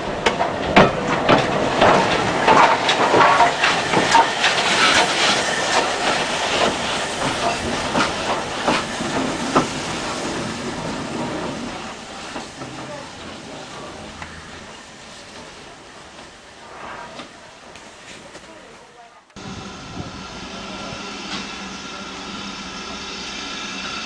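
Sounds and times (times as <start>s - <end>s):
train wheels clicking over rails: 0.0s - 18.6s
steam hissing: 1.6s - 18.3s, 19.4s - 24.0s.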